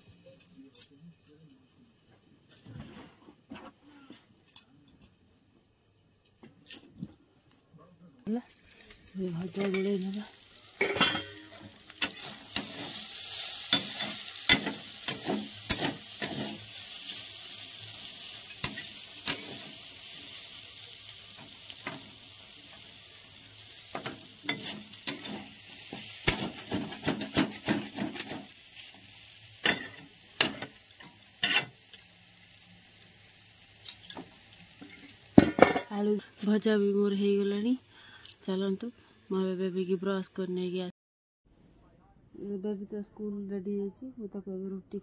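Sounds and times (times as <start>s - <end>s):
potatoes sizzling in hot oil: 8.3s - 40.7s
spatula scraping and knocking pan: 13.7s - 16.6s, 23.9s - 28.6s.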